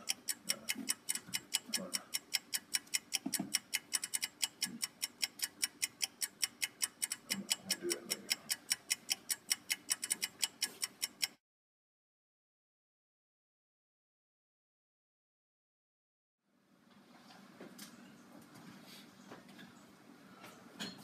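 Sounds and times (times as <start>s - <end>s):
rapid even ticking: 0.0s - 11.4s.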